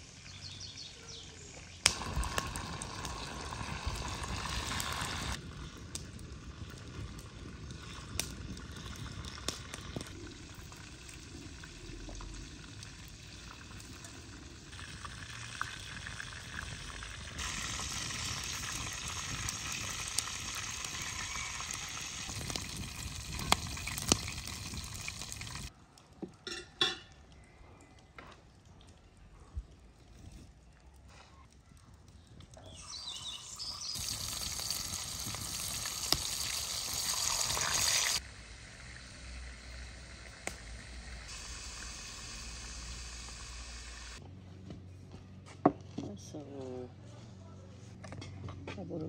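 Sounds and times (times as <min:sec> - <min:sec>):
food sizzling in a frying pan: 0:01.9 - 0:05.4, 0:12.0 - 0:25.7, 0:32.7 - 0:44.2.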